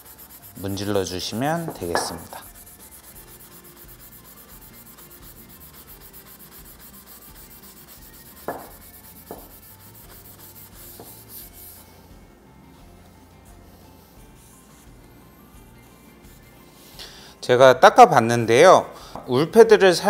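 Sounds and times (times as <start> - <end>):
abrasive pad scrubbing steel: 0.0 - 11.8.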